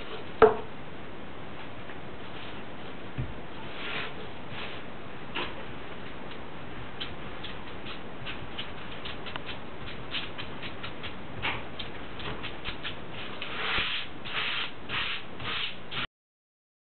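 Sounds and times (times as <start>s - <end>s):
rustling sweeps on dough: 2.2s - 2.9s, 3.6s - 4.9s, 12.3s - 16.1s
rolling pin clicking and rubbing: 7.0s - 14.1s.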